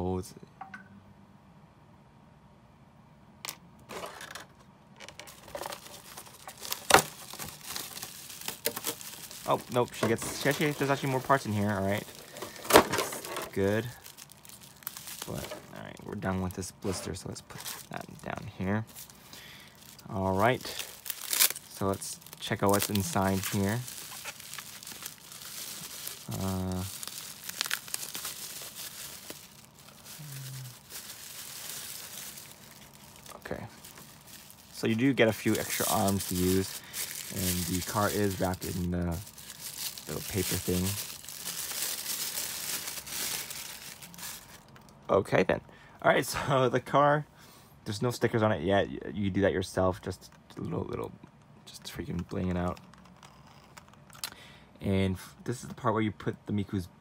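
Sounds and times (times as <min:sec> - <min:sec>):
plastic packaging crinkling: 0:05.0 - 0:45.0, 0:52.1 - 0:54.3
person humming: 0:30.1 - 0:30.8.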